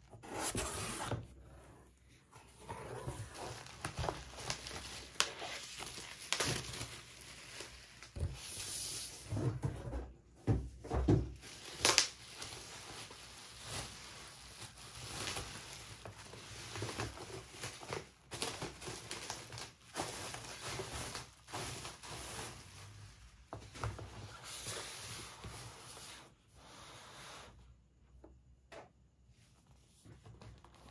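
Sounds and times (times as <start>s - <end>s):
cardboard scraping: 0.0s - 6.0s
bubble wrap crinkling: 2.6s - 8.8s, 11.4s - 25.5s.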